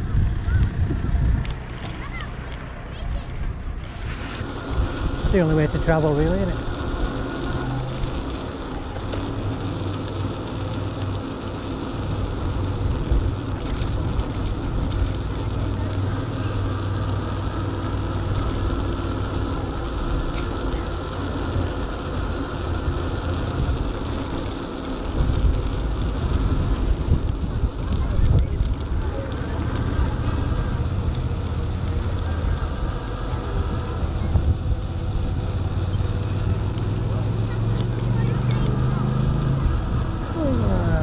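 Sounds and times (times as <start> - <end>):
electric bike hum and rumble: 0.0 - 41.0
wind buffeting microphone: 0.0 - 41.0.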